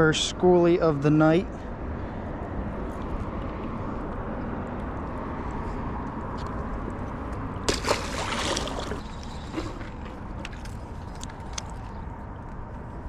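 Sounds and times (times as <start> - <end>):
fish splashing into water: 7.6 - 10.6.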